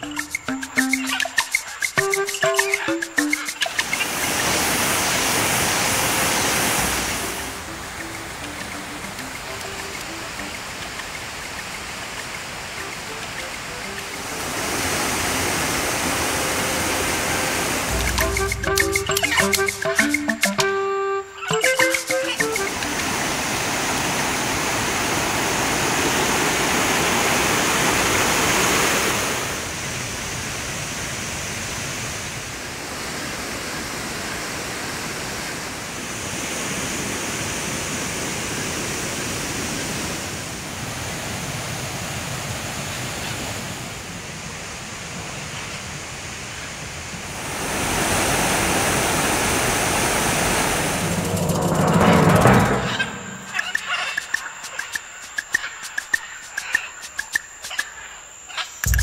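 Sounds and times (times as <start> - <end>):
creek running over rocks: 0.0 - 19.0.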